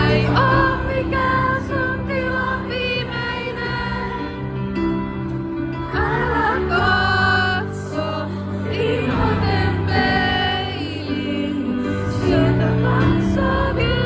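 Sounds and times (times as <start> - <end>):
woman singing: 6.0 - 14.0.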